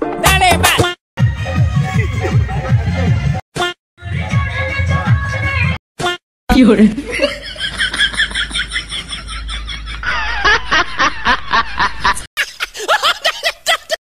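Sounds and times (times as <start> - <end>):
person laughing: 7.0 - 14.0.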